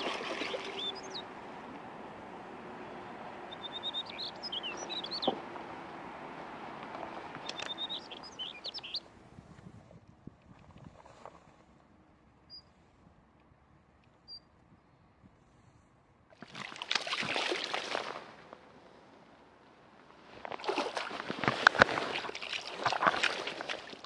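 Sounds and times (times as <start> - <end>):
fish splashing in water: 0.0 - 1.4, 16.4 - 18.5, 20.4 - 24.0.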